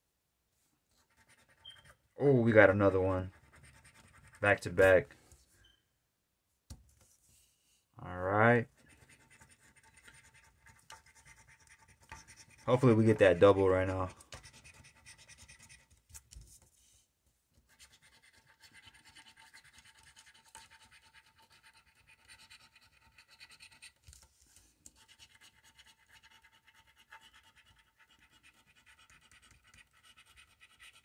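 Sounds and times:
scratching lottery ticket: 0:01.0 - 0:02.0, 0:08.7 - 0:15.9, 0:17.7 - 0:24.0, 0:24.9 - 0:31.0.

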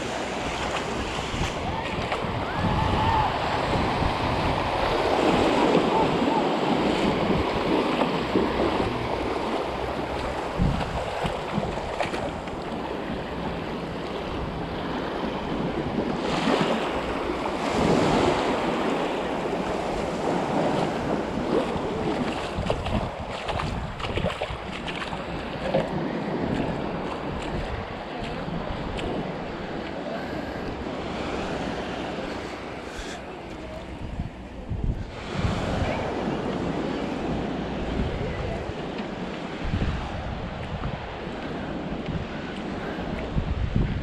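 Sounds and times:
small waves washing on sand: 0:00.0 - 0:44.0
surf swells: 0:00.0 - 0:44.0
wind rumble on microphone: 0:00.0 - 0:44.0.

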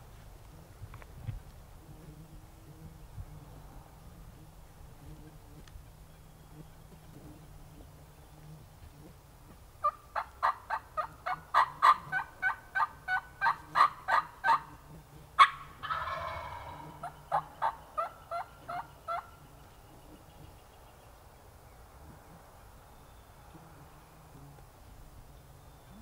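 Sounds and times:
turkey yelping: 0:09.8 - 0:14.7, 0:15.4 - 0:19.3
rough rattling call: 0:09.8 - 0:19.4.

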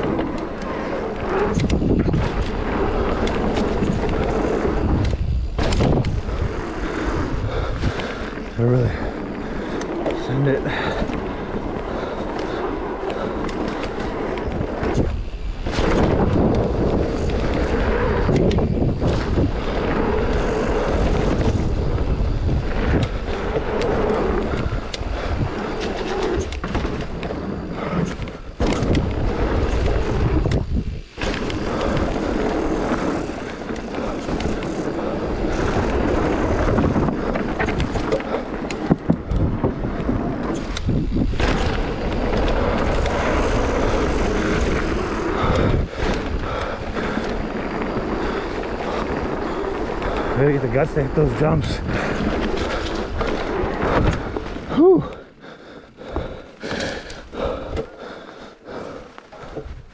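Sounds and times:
bike tyres and frame rattling: 0:00.0 - 0:59.9
wind rushing on microphone: 0:00.0 - 0:59.9.

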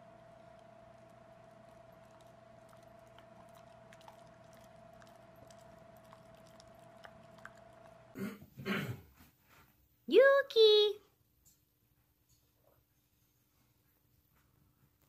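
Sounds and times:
steady hum: 0:00.0 - 0:08.3.

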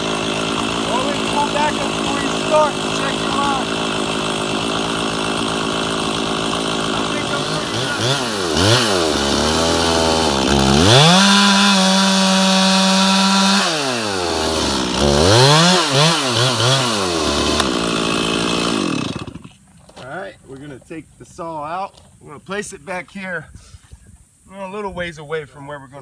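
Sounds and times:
chainsaw cutting wood: 0:00.0 - 0:19.6.

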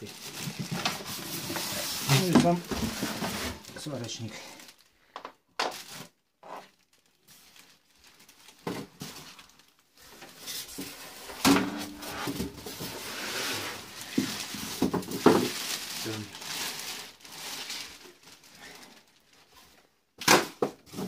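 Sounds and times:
plastic wrap rustling: 0:00.0 - 0:21.0
styrofoam blocks pulled off: 0:10.6 - 0:16.4.

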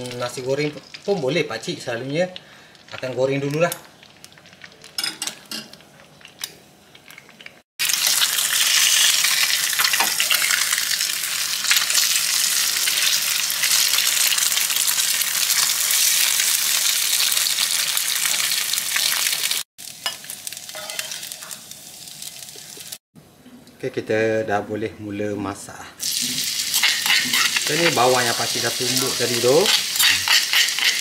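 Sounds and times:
eggs sizzling in oil: 0:00.0 - 0:23.0, 0:26.0 - 0:31.0
spatula working in wok: 0:20.0 - 0:21.8, 0:26.0 - 0:31.0.

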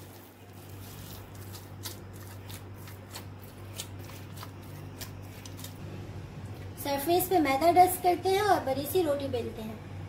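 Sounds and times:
hands kneading dough: 0:00.0 - 0:05.8
steady low hum: 0:00.0 - 0:10.0.

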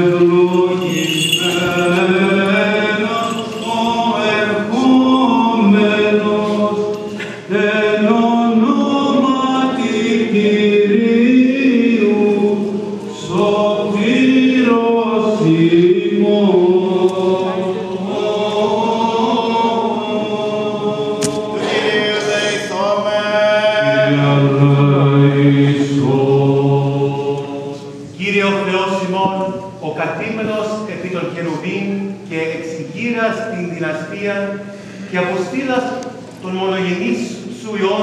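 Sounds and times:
several voices chanting: 0:12.0 - 0:28.0.

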